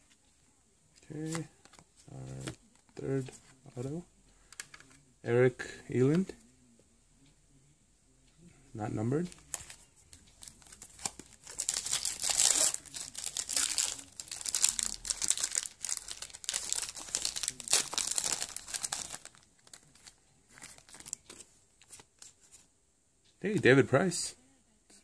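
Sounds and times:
foil wrapper tearing and crinkling: 11.5s - 19.4s.

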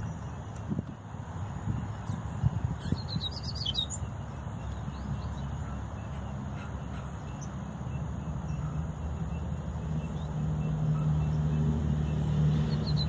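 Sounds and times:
bird twittering song: 0.0s - 13.0s.

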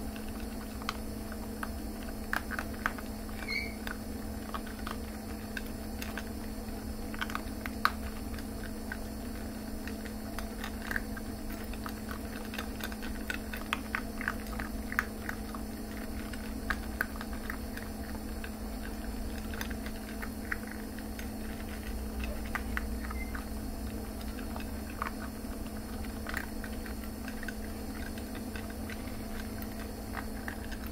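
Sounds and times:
puppies crunching kibble: 0.0s - 30.9s
steady low hum: 0.0s - 30.9s.

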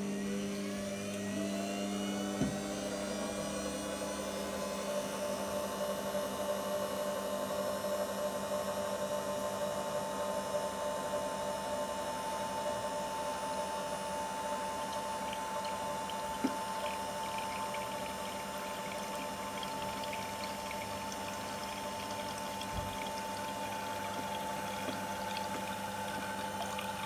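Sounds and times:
juicer motor humming and whining: 0.0s - 27.0s.

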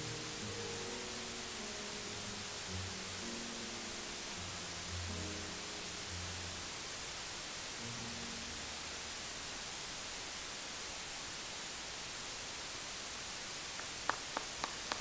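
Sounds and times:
steady hiss: 0.0s - 15.0s
audience handclaps: 13.7s - 15.0s.

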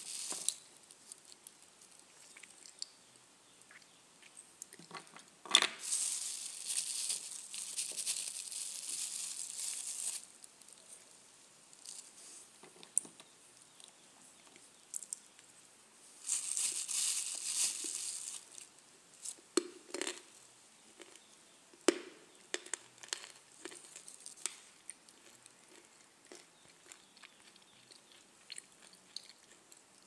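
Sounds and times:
plastic bag crinkling: 0.0s - 1.4s, 5.6s - 10.5s, 16.2s - 19.4s.

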